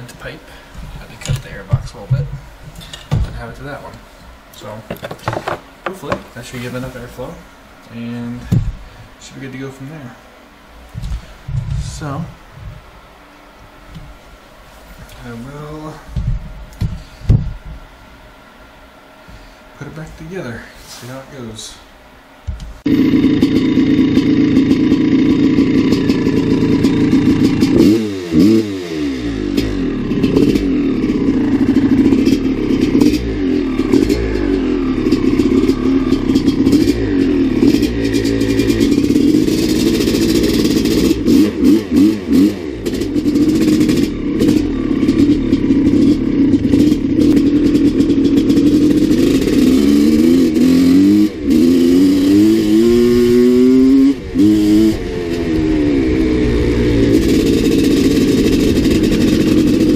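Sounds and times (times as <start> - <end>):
dirt bike engine revving: 22.8 - 59.9.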